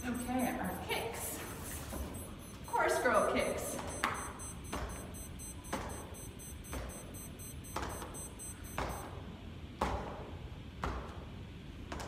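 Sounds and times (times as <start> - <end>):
rapid electronic beeping: 0.0 - 9.1
feet knocking on exercise mat: 3.7 - 9.2.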